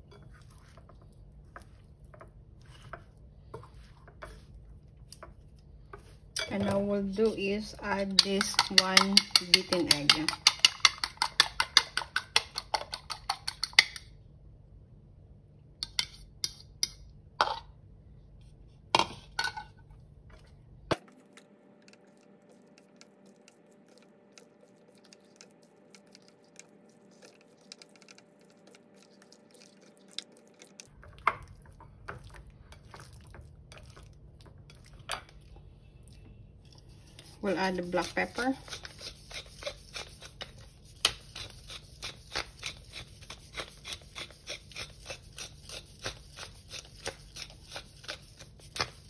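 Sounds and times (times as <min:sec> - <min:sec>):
chopsticks mixing food: 0:00.0 - 0:14.0, 0:20.3 - 0:49.0
fork beating egg in bowl: 0:00.0 - 0:14.1, 0:21.4 - 0:35.4, 0:36.6 - 0:49.0
utensils clinking on bowl: 0:06.4 - 0:14.0.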